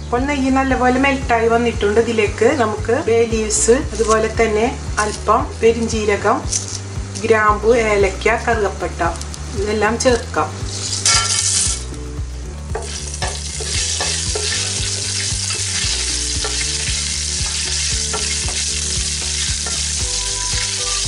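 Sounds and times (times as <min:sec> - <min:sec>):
spices sizzling in hot fat: 0:03.6 - 0:21.0
wooden spatula stirring: 0:12.7 - 0:20.8.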